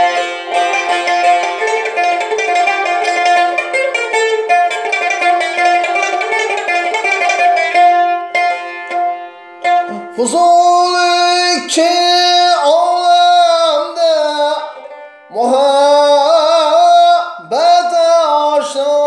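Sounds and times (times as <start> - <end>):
plucked string instrument: 0.0 - 19.0
person singing melismatic line: 9.8 - 19.0.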